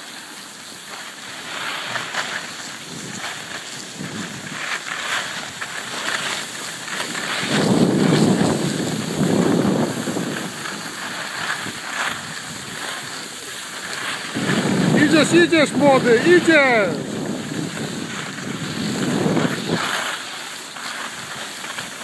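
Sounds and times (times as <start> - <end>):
skis scraping over packed snow: 0.0 - 22.0
wind rushing over microphone: 2.7 - 4.7, 6.4 - 20.2.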